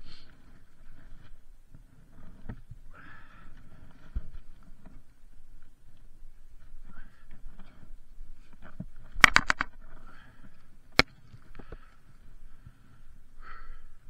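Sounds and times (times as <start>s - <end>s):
sharp clicks and knocks: 8.6s - 10.0s
mountain bike clattering: 8.8s - 10.3s.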